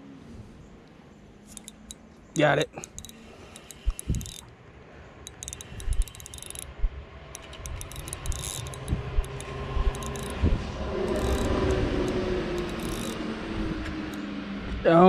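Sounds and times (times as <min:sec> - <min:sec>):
fishing reel clicking: 0:01.5 - 0:02.0, 0:02.7 - 0:04.5, 0:05.2 - 0:13.2.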